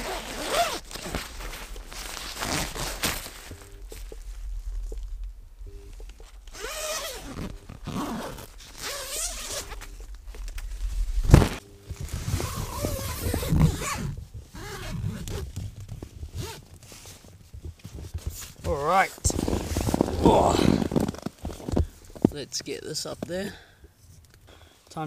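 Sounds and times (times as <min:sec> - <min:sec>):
tent zipper pulled: 0:00.0 - 0:03.6, 0:06.5 - 0:22.0.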